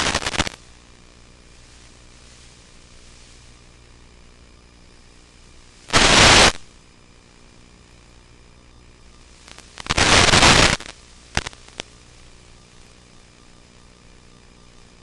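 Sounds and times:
radio static bursts: 0:00.0 - 0:06.7, 0:09.1 - 0:13.2
short static crackles: 0:00.0 - 0:14.9
faint steady hiss: 0:00.0 - 0:15.0.

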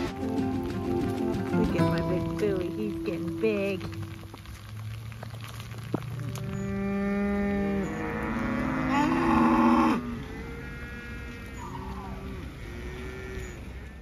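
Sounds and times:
cattle mooing: 0:06.2 - 0:14.0.

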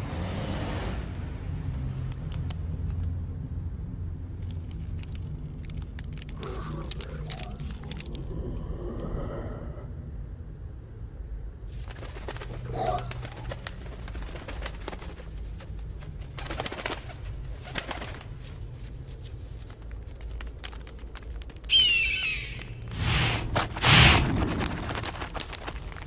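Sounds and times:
steady low rumble: 0:01.4 - 0:21.7, 0:22.5 - 0:26.0
warbling call: 0:21.7 - 0:22.8.

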